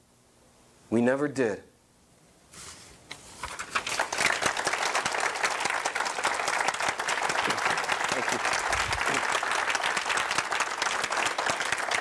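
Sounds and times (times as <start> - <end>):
audience applause: 3.8 - 12.0.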